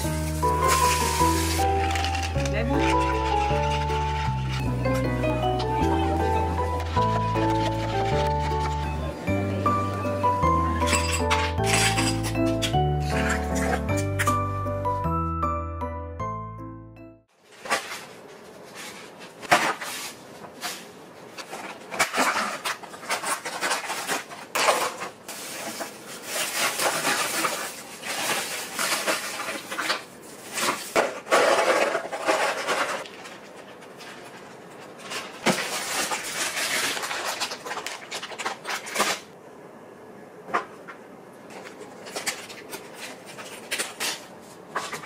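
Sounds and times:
plastic crinkling and rustling: 0:00.0 - 0:04.7, 0:21.4 - 0:39.4, 0:41.5 - 0:45.0.

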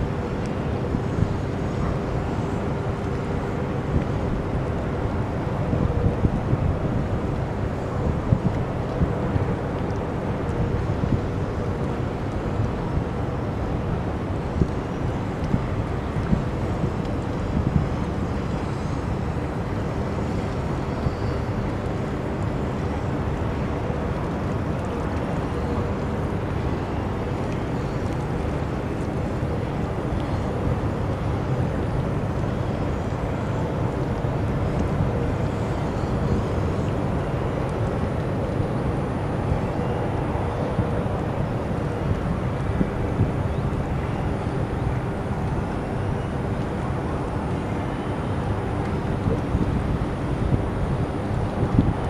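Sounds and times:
faint continuous hum: 0:00.0 - 0:52.0.

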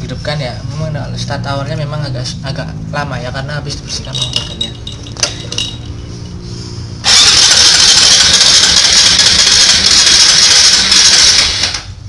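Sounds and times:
motorcycle engine revving: 0:04.6 - 0:12.0.

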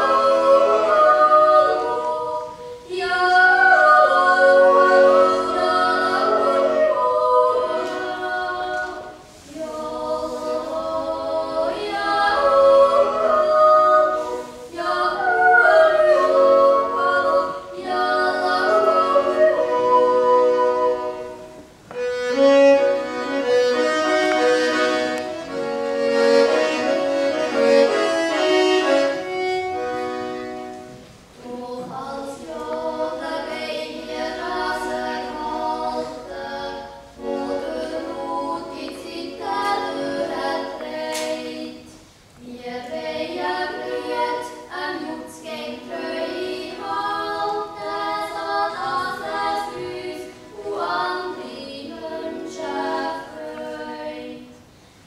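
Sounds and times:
young voices singing in harmony: 0:00.0 - 0:55.0.

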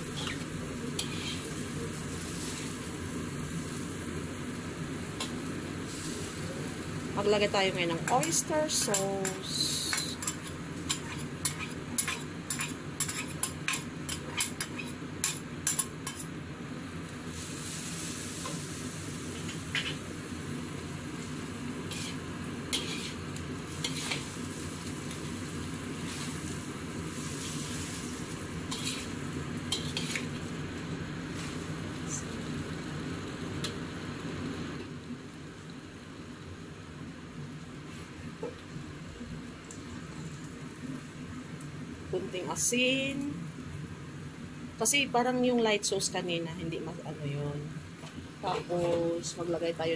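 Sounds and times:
food sizzling in a pan: 0:00.0 - 0:49.9
spatula clacking against pan: 0:08.2 - 0:16.2.

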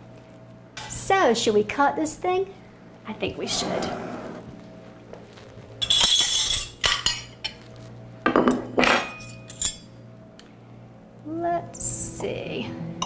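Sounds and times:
metal kitchen utensils clinking: 0:05.8 - 0:07.6, 0:08.4 - 0:09.9.

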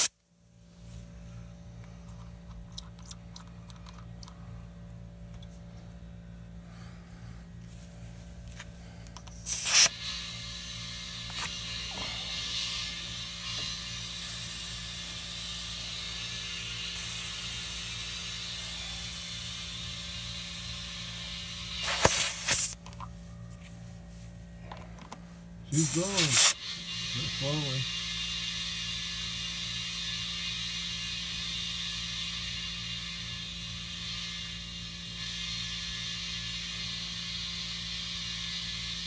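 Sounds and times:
air flowing into tire: 0:06.6 - 0:22.8, 0:24.6 - 0:39.0
air chuck hissing: 0:07.6 - 0:22.8, 0:25.7 - 0:39.0.

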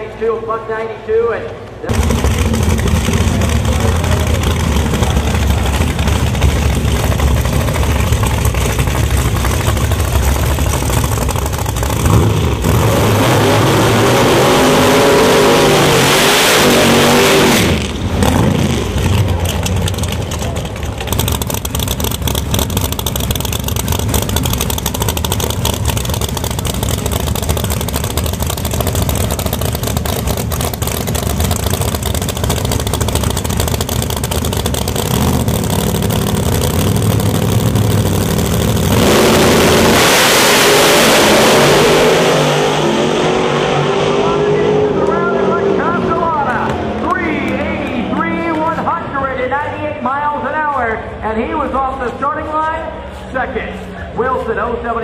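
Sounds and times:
drag car engines running loudly: 0:01.5 - 0:55.0
engine revving hard: 0:11.8 - 0:19.3, 0:34.9 - 0:46.4.

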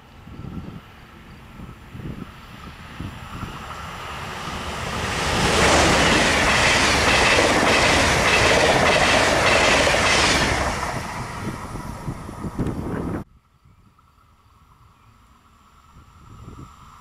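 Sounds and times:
train wheels rushing on rail: 0:00.0 - 0:13.2.

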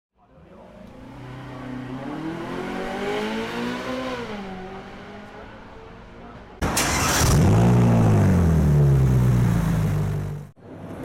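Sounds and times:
car engine revving: 0:00.4 - 0:10.6.

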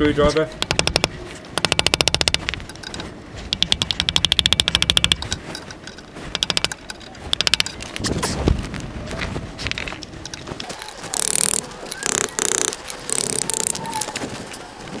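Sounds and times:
hammer striking metal screwdriver: 0:00.6 - 0:08.1.

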